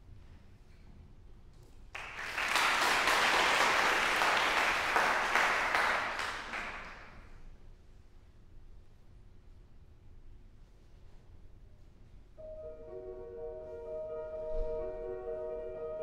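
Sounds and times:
audience applauding: 2.0s - 7.2s.

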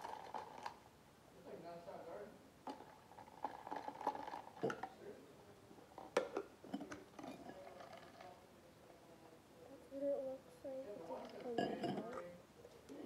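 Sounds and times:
ice clinking in metal mug: 0.0s - 0.8s, 2.7s - 4.9s.

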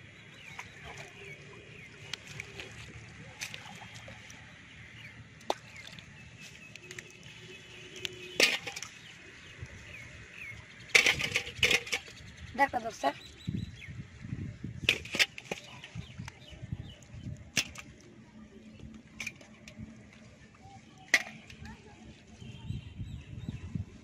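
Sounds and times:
fish and net clicking and rustling: 10.8s - 12.3s.

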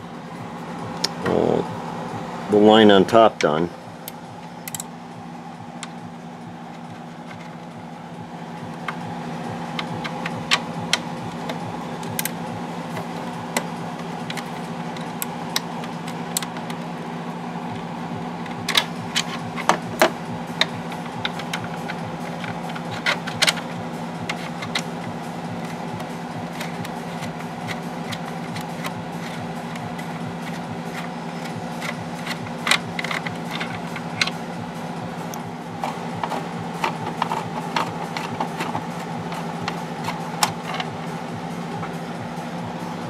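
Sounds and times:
steady hum: 0.0s - 43.0s
hand tools clicking and clinking: 4.0s - 4.9s, 18.6s - 34.4s, 35.2s - 42.0s.

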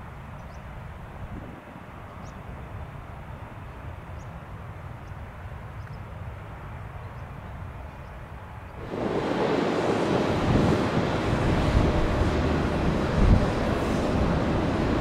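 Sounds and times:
distant vehicles rumbling: 8.8s - 15.0s.

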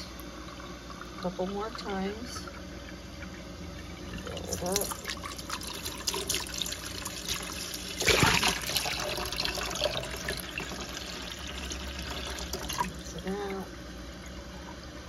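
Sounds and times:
water running and splashing: 3.2s - 13.6s.

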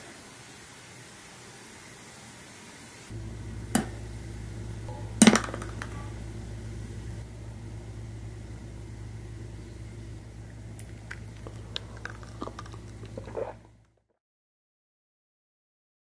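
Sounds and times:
low steady hum: 3.1s - 14.1s.

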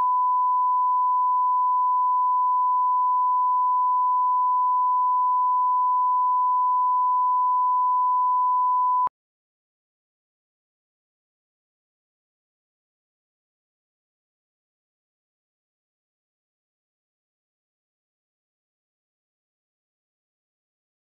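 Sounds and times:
sine-wave line-up tone: 0.0s - 9.1s.

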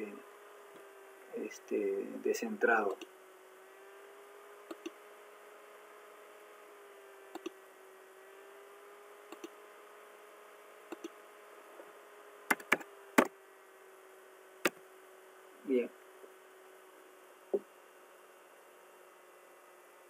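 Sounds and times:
faint electrical hum: 0.0s - 20.0s
computer mouse clicks: 4.7s - 5.0s, 7.3s - 7.6s, 9.3s - 9.6s, 10.9s - 11.2s, 12.5s - 12.9s.

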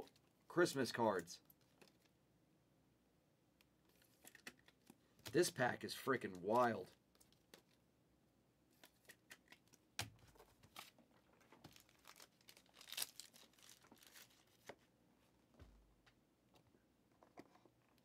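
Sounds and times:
pack wrappers rustling: 10.6s - 14.7s.

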